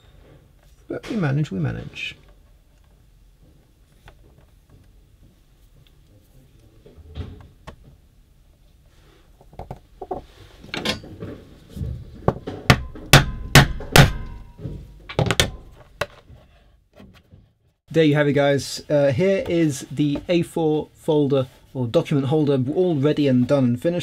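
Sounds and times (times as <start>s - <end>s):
mallet striking metal tool: 12.7s - 14.6s.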